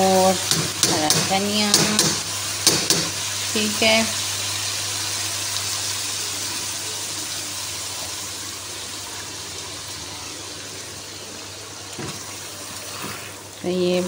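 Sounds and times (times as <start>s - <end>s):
food sizzling in a wok: 0.0s - 14.0s.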